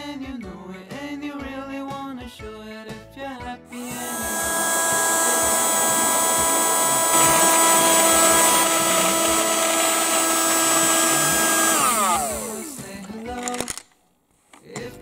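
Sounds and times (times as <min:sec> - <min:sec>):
toy vacuum cleaner motor whining: 0:03.7 - 0:13.8.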